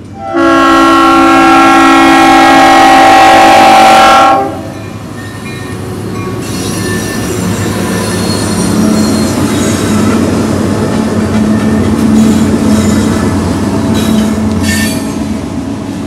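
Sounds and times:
train wheels rumbling on rails: 0.0s - 16.0s
diesel locomotive horn: 0.1s - 4.8s.

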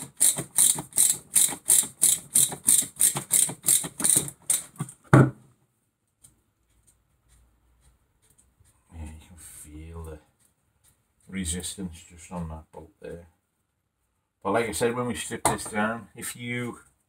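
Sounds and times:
socket ratchet clicking: 0.0s - 4.8s
loud knock: 5.1s - 5.4s.

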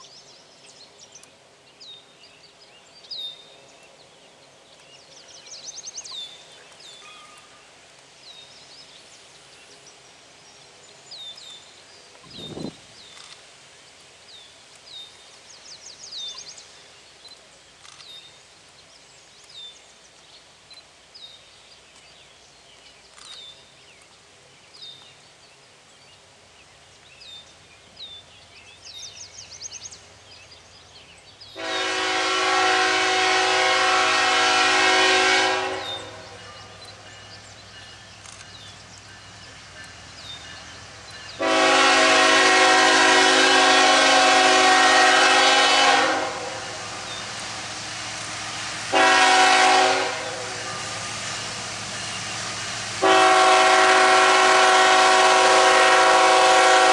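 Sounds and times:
locomotive engine rumble: 31.2s - 56.9s
locomotive air horn blasts: 31.6s - 36.4s, 41.4s - 46.8s, 48.9s - 51.2s, 53.0s - 56.9s.

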